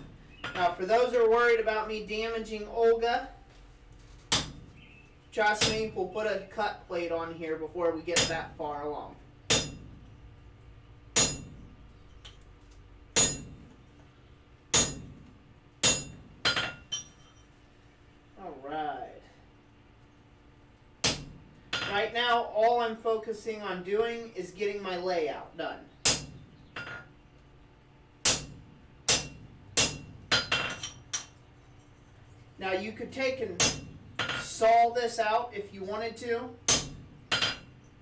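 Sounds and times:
hammer striking chisel on metal: 4.3s - 4.7s, 8.2s - 8.5s, 9.5s - 10.0s, 11.2s - 12.4s, 13.2s - 13.6s, 14.7s - 15.2s, 15.8s - 17.4s, 21.0s - 21.9s, 26.0s - 27.1s, 28.2s - 31.4s, 33.6s - 34.5s, 36.7s - 37.7s.

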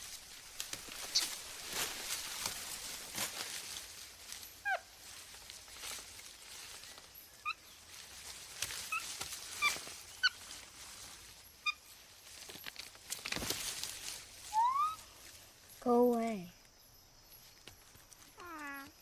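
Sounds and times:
soft rustles: 0.0s - 16.5s, 17.3s - 19.0s
short high animal calls: 14.5s - 15.0s, 18.4s - 18.9s.

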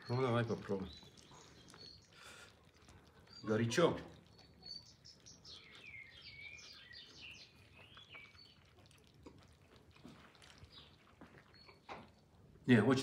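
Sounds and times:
bird twittering: 3.3s - 8.7s.

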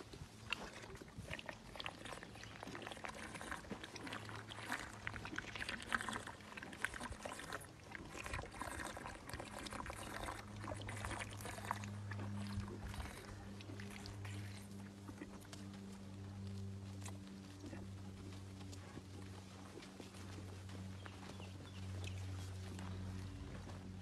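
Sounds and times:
elephant slurping from bottle: 0.4s - 15.5s.

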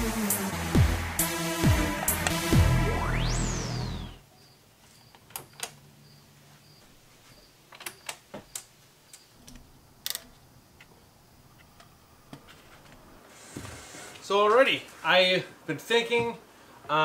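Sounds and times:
electronic music with falling sweep: 0.0s - 4.2s.

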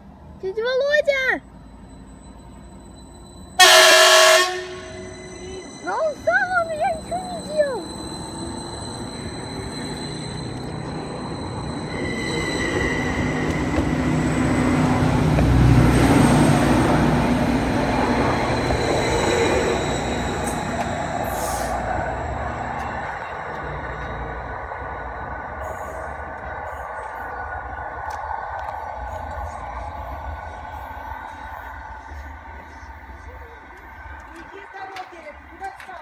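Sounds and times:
train wheels rumbling on rails: 0.0s - 36.0s
wheel squeal: 4.8s - 14.7s, 17.8s - 27.4s.

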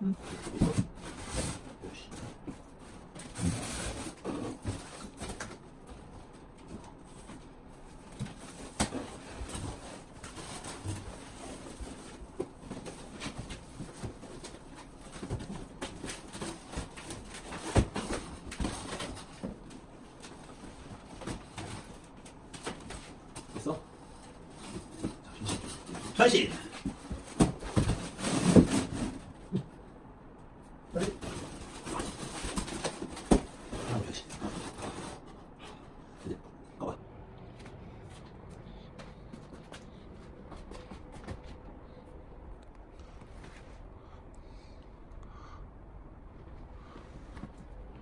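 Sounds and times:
cardboard rustling and scraping: 0.2s - 29.8s, 30.9s - 36.4s.

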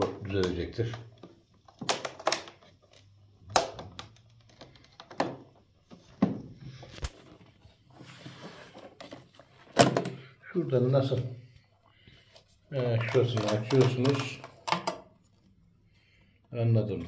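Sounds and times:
plastic parts knocking and clicking: 0.0s - 7.4s, 8.8s - 10.3s, 12.9s - 15.4s.

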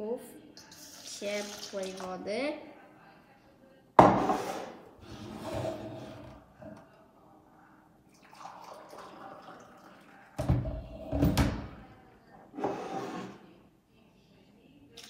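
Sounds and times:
water pouring into mug: 8.1s - 10.4s.

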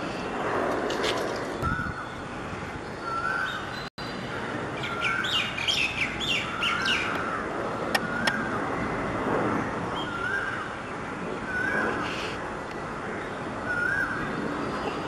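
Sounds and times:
bird chirping: 1.6s - 7.2s.

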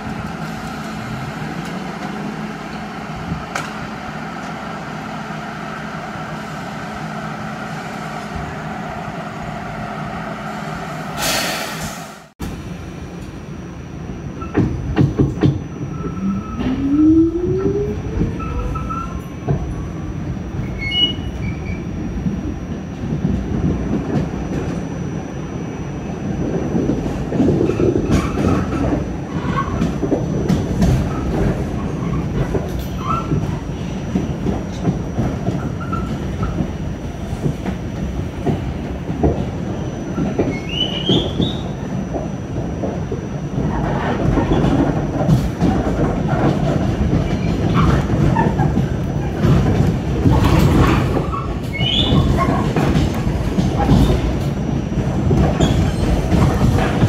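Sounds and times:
train wheels rumbling on rail: 0.0s - 57.0s
wheel squeal: 15.8s - 19.8s, 20.6s - 21.9s, 35.5s - 36.6s, 39.8s - 41.8s, 50.8s - 52.7s, 55.6s - 56.6s.

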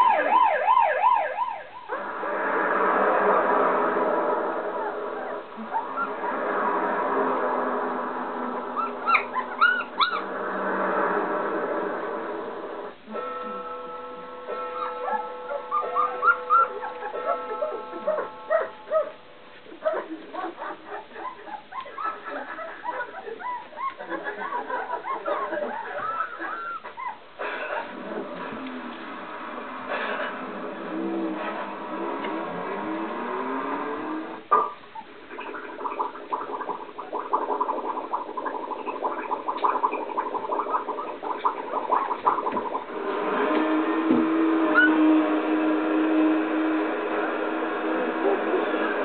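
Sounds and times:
puppies squeaking and whimpering: 4.8s - 6.4s, 8.8s - 10.4s, 14.8s - 27.9s, 44.8s - 45.0s.

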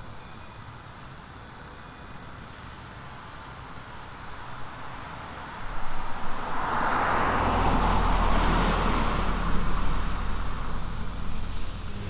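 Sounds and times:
car driving past: 5.6s - 12.0s.

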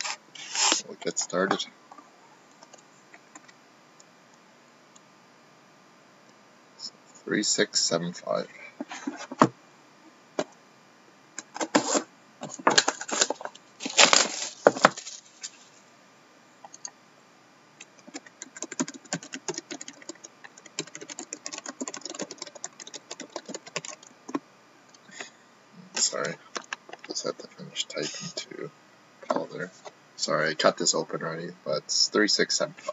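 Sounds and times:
computer keyboard typing: 17.8s - 24.4s.

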